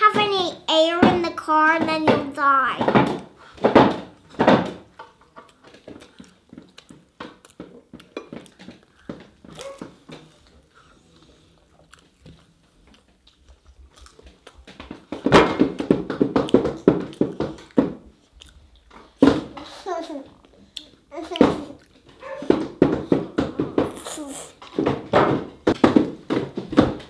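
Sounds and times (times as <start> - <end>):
child's voice: 0.0 - 3.1, 19.8 - 20.4, 21.1 - 21.8, 23.9 - 24.6
children chewing and eating: 0.0 - 27.0.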